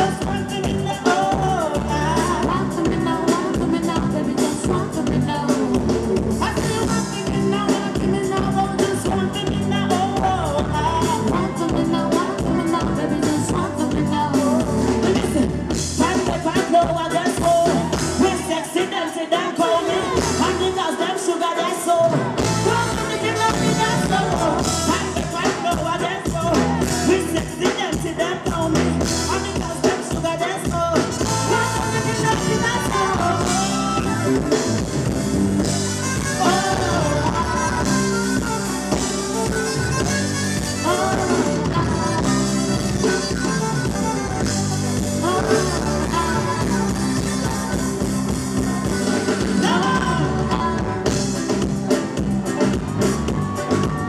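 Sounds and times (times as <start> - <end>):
bass guitar: 0.0 - 21.0, 21.9 - 54.0
woman singing: 0.0 - 28.6, 29.3 - 34.6, 36.0 - 40.0, 40.6 - 51.4
live band playing: 0.0 - 54.0.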